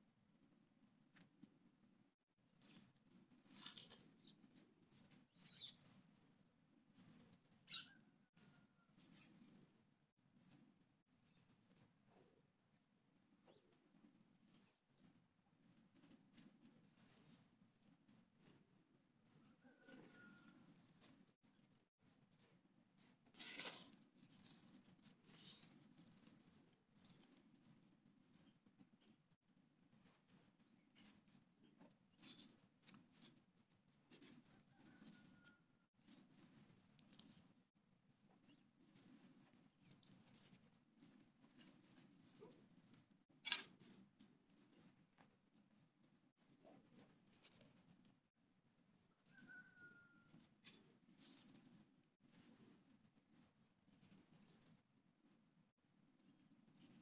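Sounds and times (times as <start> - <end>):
dry leaves and sticks rustling: 23.4 - 26.2.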